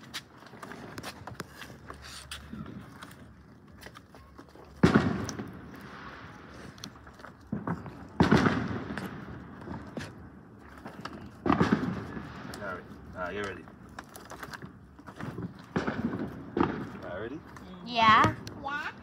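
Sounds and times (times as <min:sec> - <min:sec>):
faint firework pops: 0:04.8 - 0:10.2, 0:11.4 - 0:12.6, 0:15.4 - 0:17.1
fireworks bangs: 0:04.8 - 0:10.5, 0:11.3 - 0:13.5, 0:15.2 - 0:19.0.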